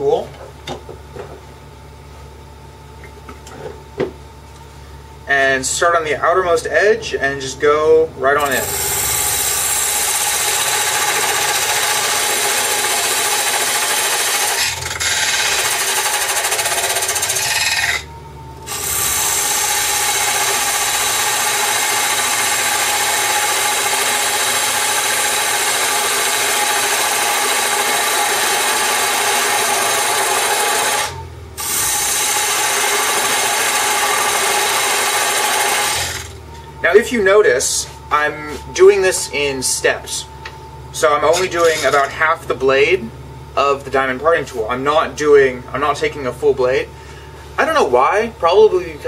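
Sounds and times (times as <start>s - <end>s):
lathe tool scraping wood: 8.3s - 18.1s, 18.7s - 37.0s, 41.0s - 42.3s.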